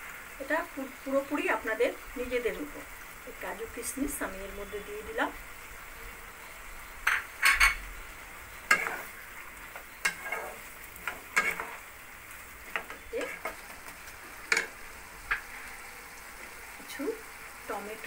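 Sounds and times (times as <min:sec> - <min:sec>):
food cooking hiss: 0:00.0 - 0:18.0
wooden spatula scraping a wok: 0:08.6 - 0:15.8.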